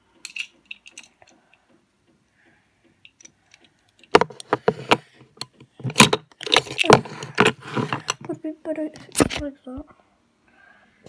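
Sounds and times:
camera handling knocks and rustles: 4.1s - 8.3s.

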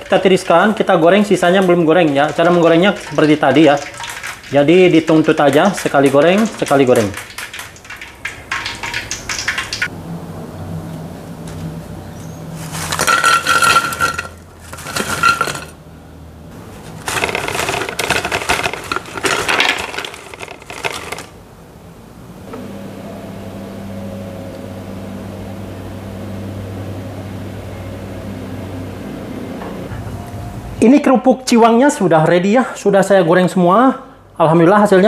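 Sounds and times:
crackers clattering and scraping: 12.6s - 15.8s, 16.8s - 21.4s.

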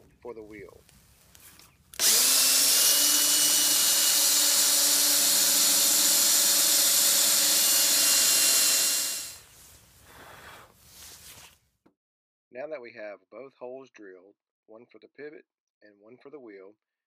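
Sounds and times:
cordless drill boring wood: 2.0s - 9.4s.

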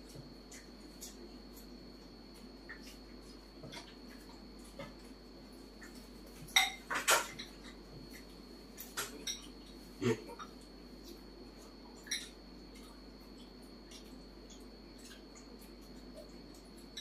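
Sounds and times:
small bowl clinking: 6.5s - 7.7s.

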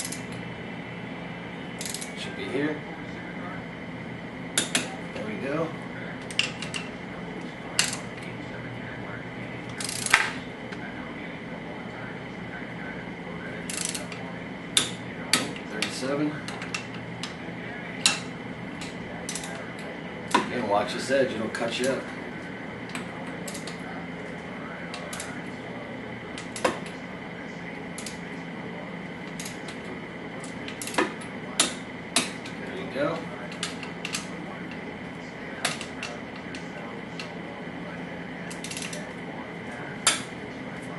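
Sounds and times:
wrench ratcheting rattle: 0.0s - 0.3s, 1.8s - 2.1s, 9.8s - 10.2s, 13.7s - 14.2s, 38.5s - 39.0s
torque wrench clicking: 0.0s - 0.4s, 1.8s - 2.1s, 7.8s - 8.0s, 9.8s - 10.3s, 13.7s - 14.2s, 18.8s - 19.6s, 29.3s - 29.7s, 38.5s - 39.0s
steady background hum: 0.0s - 40.9s.

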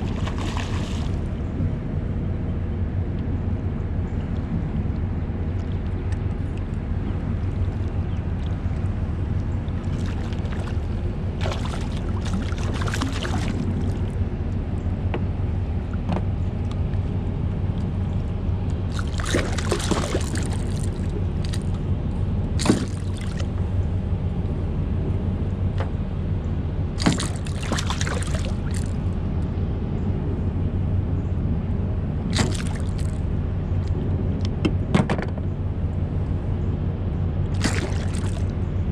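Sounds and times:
water splashing and dripping: 0.0s - 1.3s, 7.4s - 14.2s, 18.9s - 21.8s, 22.6s - 23.6s, 27.0s - 29.1s, 32.3s - 33.2s, 37.6s - 38.5s
low hum: 0.0s - 38.9s.

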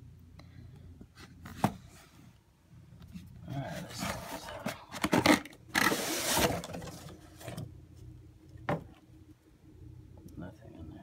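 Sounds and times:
fabric bag rustling and scraping: 5.8s - 7.0s.

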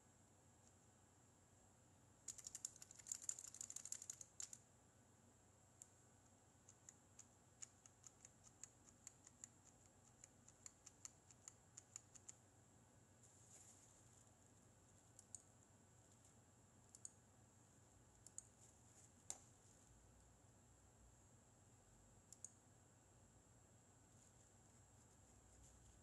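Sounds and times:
keyboard keystrokes: 2.3s - 4.6s.

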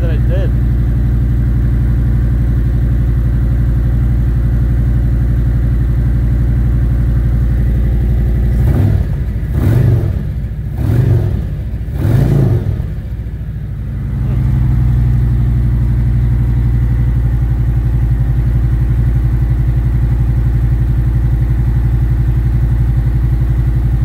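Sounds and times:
motorcycle engine idling and revving: 0.0s - 24.0s.

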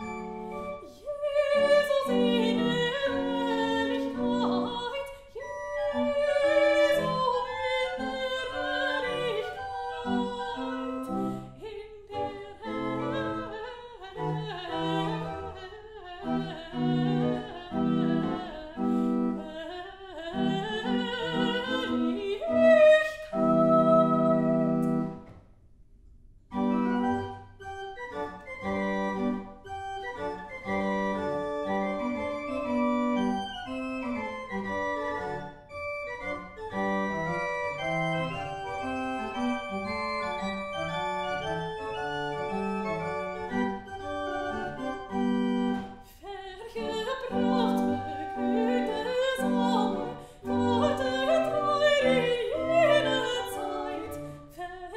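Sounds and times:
pipe organ: 0.0s - 0.8s, 24.4s - 25.4s, 26.5s - 46.0s, 47.3s - 54.5s
soprano singing: 0.0s - 25.2s, 37.7s - 54.9s.

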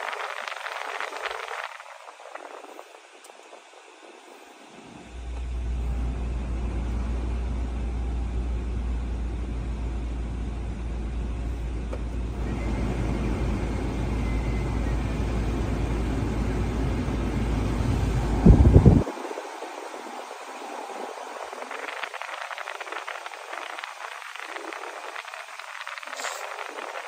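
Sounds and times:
low rumble: 5.0s - 25.8s
fan blower air rushing: 11.4s - 27.0s.

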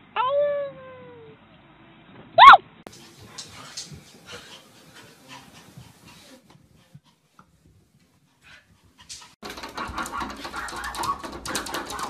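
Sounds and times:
dog panting: 2.9s - 12.0s.

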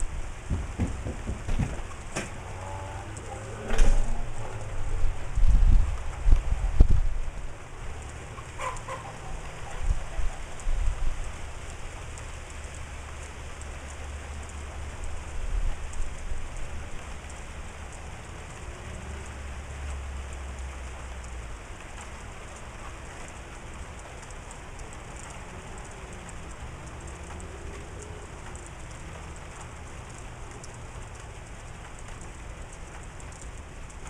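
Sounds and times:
steady rain falling: 0.0s - 34.0s
low rumble: 1.9s - 8.2s.

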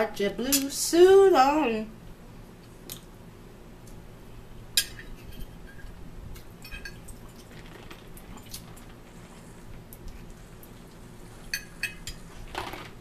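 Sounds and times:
forks clinking on plates: 6.6s - 7.1s.

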